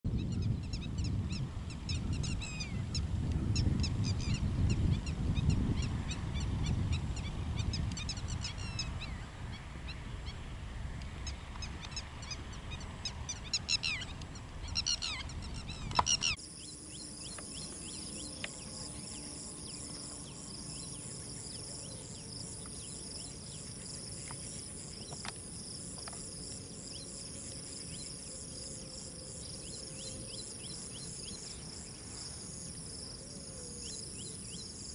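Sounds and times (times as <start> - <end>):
small birds chirping: 11.1 - 34.9
high-pitched insect chorus: 14.8 - 34.9.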